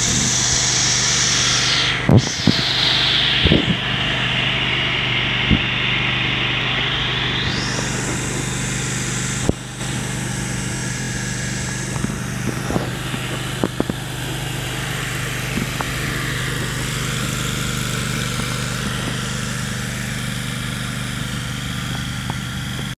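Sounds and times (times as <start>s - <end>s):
lawn mower engine running: 0.0s - 23.0s.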